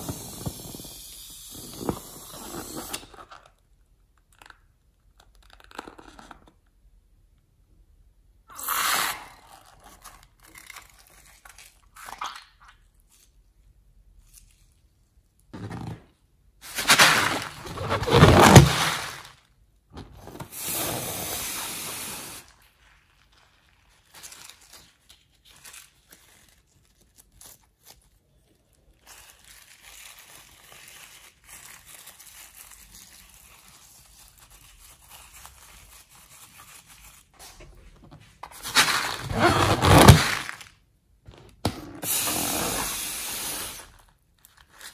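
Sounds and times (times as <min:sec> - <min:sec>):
sticky slime mixing: 0:16.6 - 0:19.5.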